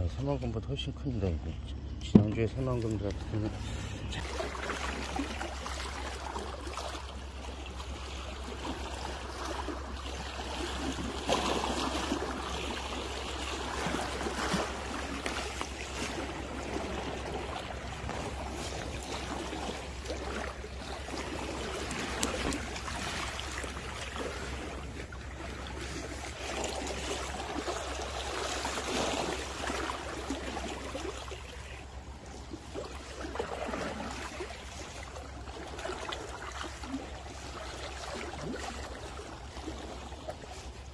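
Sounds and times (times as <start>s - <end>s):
steady low hum: 0.0s - 40.9s
waves lapping against rocks: 0.0s - 40.9s.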